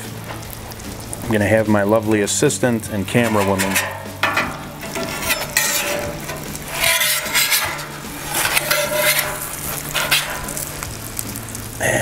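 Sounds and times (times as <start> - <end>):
food sizzling on griddle: 0.0 - 12.0
metal spatula scraping griddle: 2.8 - 11.8.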